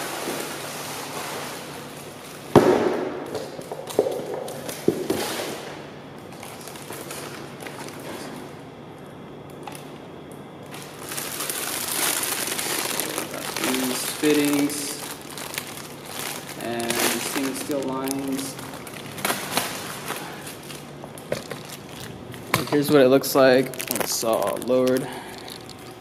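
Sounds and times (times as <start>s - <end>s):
packaging rustling and crinkling: 6.3s - 8.5s, 10.6s - 26.0s.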